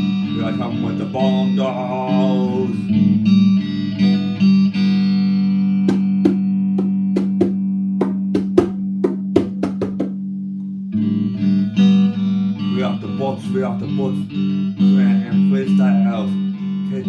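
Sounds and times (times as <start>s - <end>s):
electric guitar strumming: 0.0s - 17.0s
hand drum slapped: 5.8s - 10.2s.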